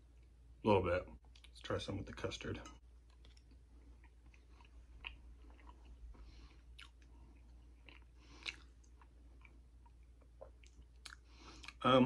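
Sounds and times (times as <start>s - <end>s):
quiet chewing: 1.2s - 1.6s, 2.9s - 11.8s.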